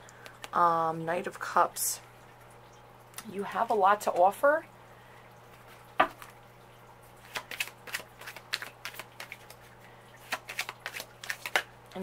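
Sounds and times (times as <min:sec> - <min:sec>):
cards flicking and tapping: 0:07.2 - 0:09.6, 0:10.2 - 0:12.0
card snap: 0:10.3 - 0:11.7.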